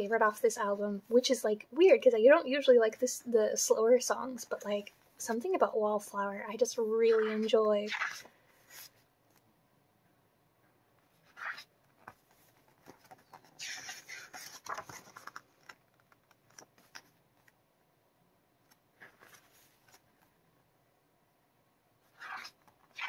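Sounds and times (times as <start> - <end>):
pages rustling and turning: 7.2 - 9.4, 11.0 - 17.6, 18.6 - 20.3, 22.0 - 23.0.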